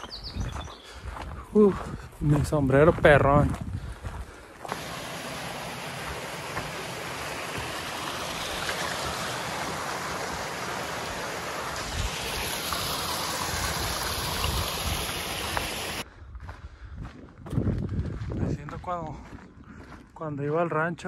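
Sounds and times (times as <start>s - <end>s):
creek running over rocks: 4.6s - 16.0s.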